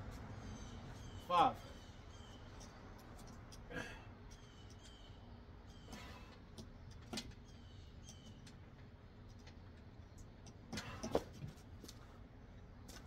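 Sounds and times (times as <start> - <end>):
faint bird chirps: 0.3 - 2.8, 4.3 - 8.5.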